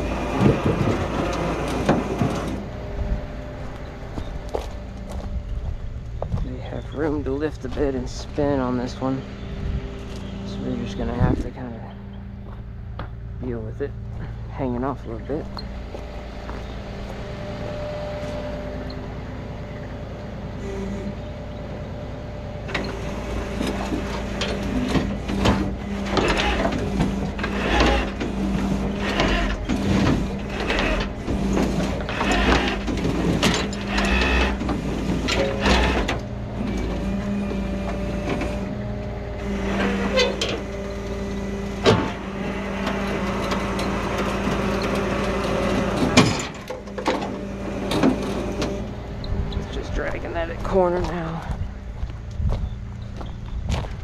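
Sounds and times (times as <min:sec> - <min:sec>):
metal scraping and clanking on steel: 0:00.0 - 0:05.2, 0:22.6 - 0:50.3
truck engine running: 0:00.0 - 0:54.0.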